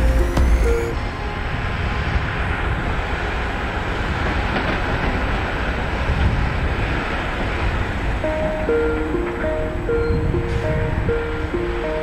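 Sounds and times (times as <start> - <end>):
heavy diesel engines rumbling: 0.0 - 12.0.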